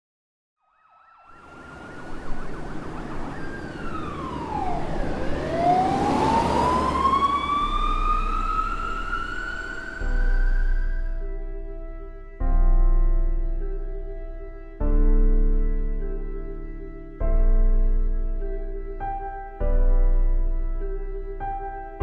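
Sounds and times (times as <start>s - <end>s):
siren wailing: 0.6s - 11.3s
rushing noise: 1.3s - 11.1s.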